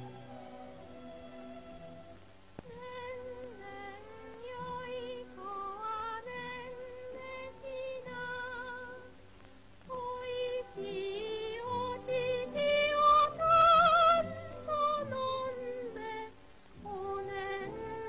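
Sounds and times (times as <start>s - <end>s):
film soundtrack music: 0.0s - 9.2s.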